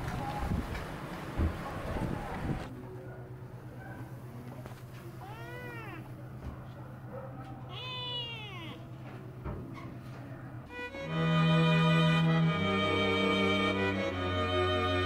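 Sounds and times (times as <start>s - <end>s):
kitten meowing: 5.2s - 6.1s, 7.7s - 8.9s.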